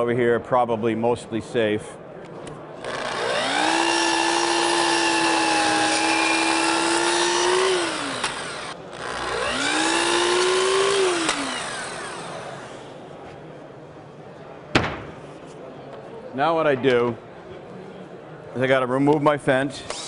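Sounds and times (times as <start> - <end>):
miter saw motor whining: 2.8 - 12.9.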